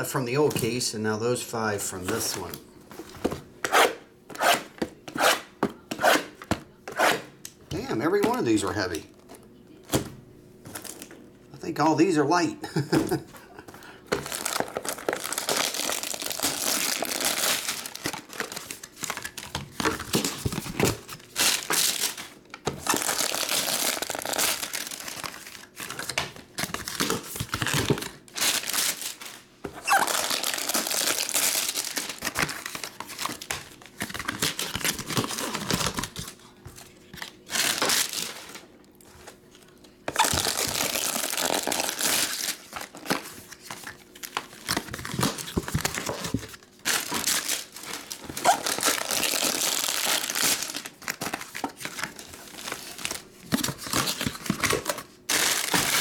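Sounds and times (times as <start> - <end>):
plastic-wrapped packs rustling: 14.1 - 36.4, 37.1 - 39.4, 40.1 - 56.0
shrink wrap crinkling and tearing: 14.2 - 38.7, 39.4 - 56.0.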